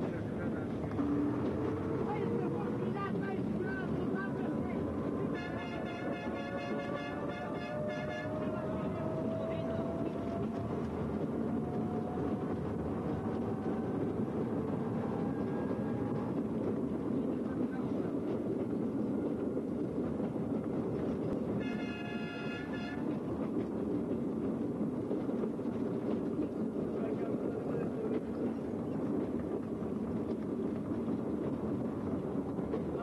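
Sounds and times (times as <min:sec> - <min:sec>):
rail vehicle rumbling on track: 0:00.0 - 0:33.0
vehicle horn: 0:05.4 - 0:08.3, 0:21.6 - 0:23.0.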